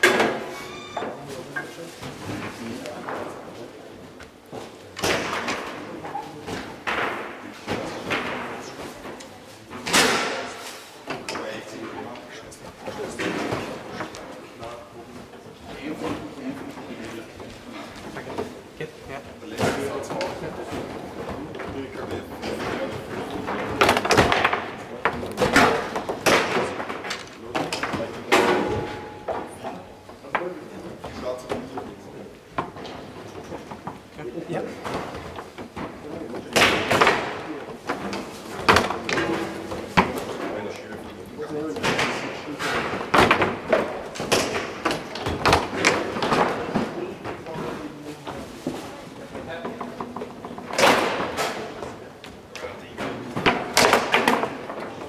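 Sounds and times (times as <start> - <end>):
foosball ball knocks and clacks: 22.4 - 34.1, 41.8 - 47.6, 49.4 - 55.0
foosball rods and ball knocking: 41.8 - 47.8, 48.6 - 55.0.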